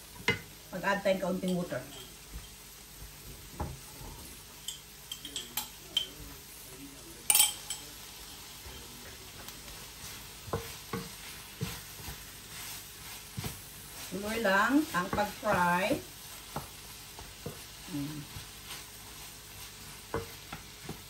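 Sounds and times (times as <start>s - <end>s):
broccoli sizzling in pan: 0.0s - 21.0s
water hissing in hot pan: 0.0s - 21.0s
wooden spatula scraping pan: 8.6s - 21.0s.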